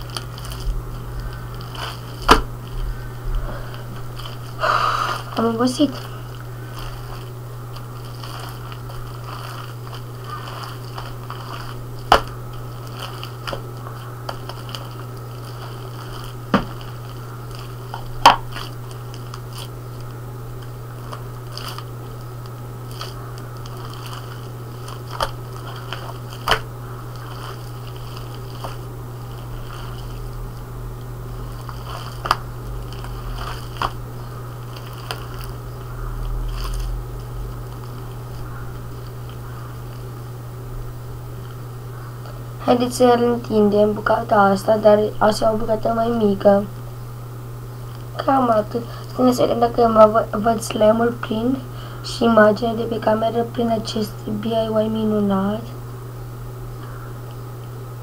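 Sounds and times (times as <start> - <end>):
slime squishing: 0.0 - 43.2
steady low hum: 0.0 - 58.0.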